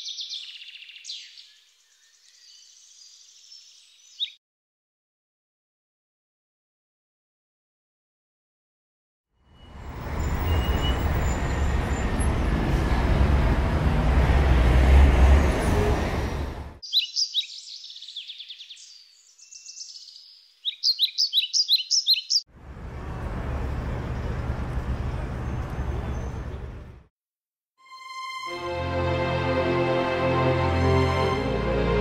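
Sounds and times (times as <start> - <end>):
small birds chirping: 0.0 - 4.4, 16.8 - 22.5.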